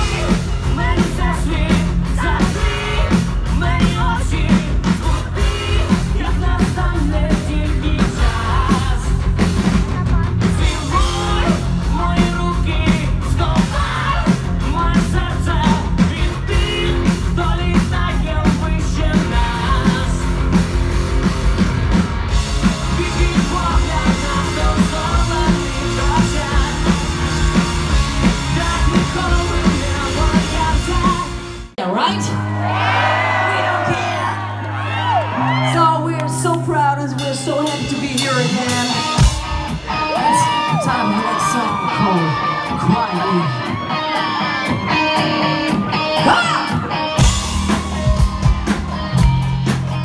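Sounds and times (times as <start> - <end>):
man singing lead vocal: 0.0 - 20.7, 22.5 - 32.4, 33.2 - 34.5, 35.4 - 47.8
drums: 0.0 - 50.0
electric guitar: 34.3 - 50.0.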